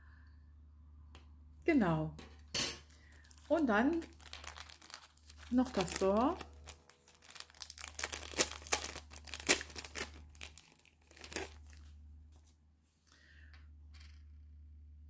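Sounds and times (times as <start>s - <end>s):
plastic packaging crinkling: 2.8s - 12.0s.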